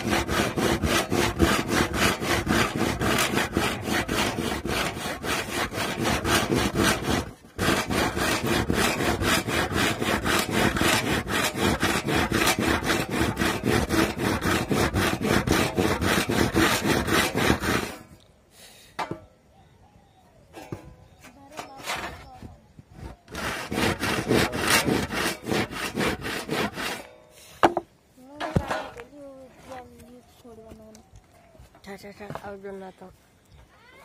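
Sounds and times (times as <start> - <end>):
hand saw cutting wood: 0.0 - 18.2, 21.5 - 22.3, 23.3 - 27.8.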